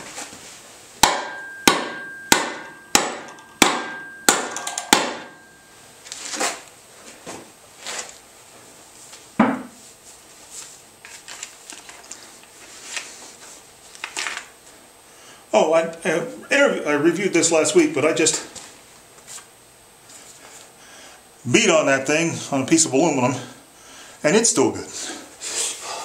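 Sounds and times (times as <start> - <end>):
metal hammer blows with ringing: 1.0 - 5.7.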